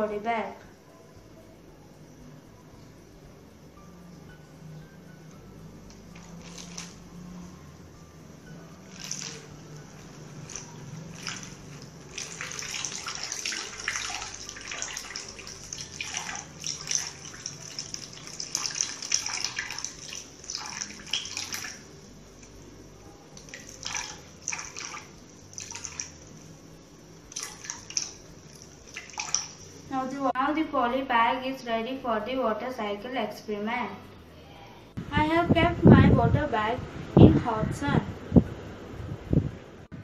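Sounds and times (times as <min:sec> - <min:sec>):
water pouring into plastic bag: 0:06.2 - 0:07.0, 0:08.9 - 0:09.5, 0:10.4 - 0:21.8.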